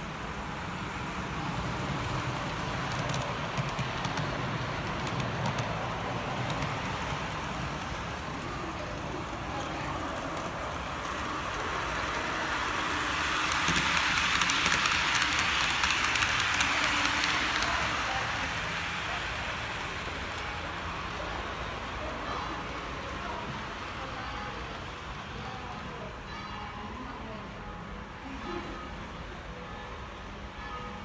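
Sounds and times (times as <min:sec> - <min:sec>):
model train wheels rattling on track: 0:00.9 - 0:24.0.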